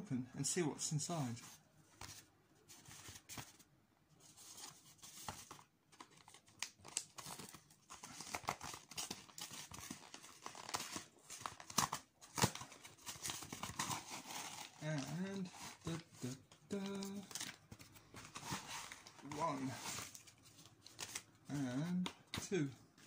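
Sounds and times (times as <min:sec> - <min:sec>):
cardboard envelope tearing: 0:04.5 - 0:16.0.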